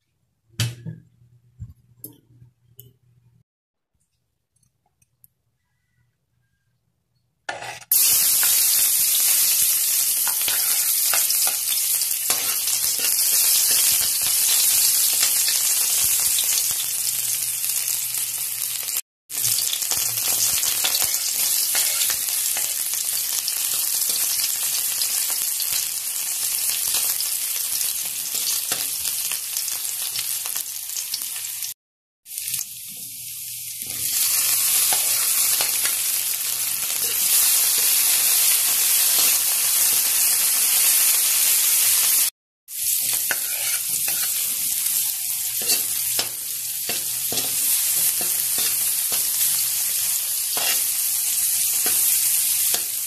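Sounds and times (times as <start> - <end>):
onion sizzling in hot oil: 7.5 - 53.0
spatula stirring in a wok: 20.9 - 22.8, 43.0 - 44.8, 50.6 - 50.9.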